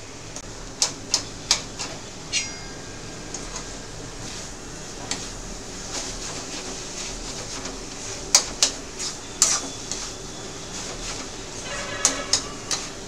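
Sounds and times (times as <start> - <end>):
steady frying hiss: 0.0 - 13.0
metal spatula scraping a pan: 2.3 - 13.0.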